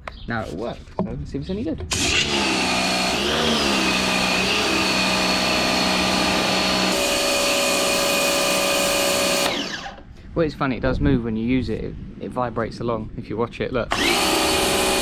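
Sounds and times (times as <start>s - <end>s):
pressure washer motor and pump: 1.9s - 10.0s, 13.9s - 15.0s.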